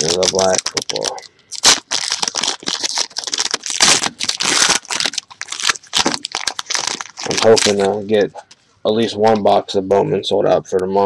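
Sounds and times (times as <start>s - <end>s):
hands tearing foil pack: 0.0s - 7.9s
foil wrapper crinkling: 0.0s - 8.0s.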